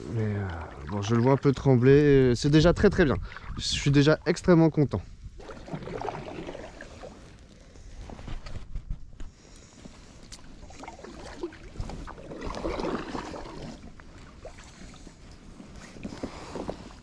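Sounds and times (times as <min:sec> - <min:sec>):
paddle splashing in water: 0:05.4 - 0:07.4, 0:10.5 - 0:15.1.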